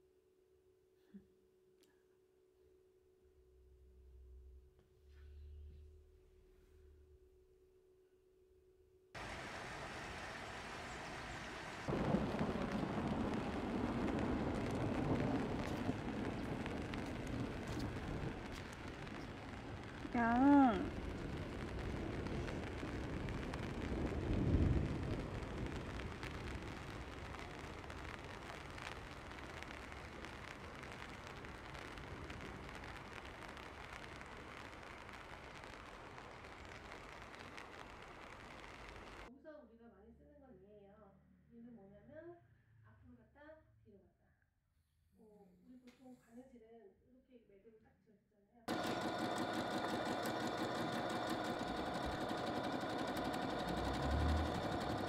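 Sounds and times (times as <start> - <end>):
low rumble: 9.2 - 39.3
raindrops ticking: 9.2 - 39.3, 48.7 - 55.0
steady rain falling: 9.2 - 39.3, 48.7 - 55.0.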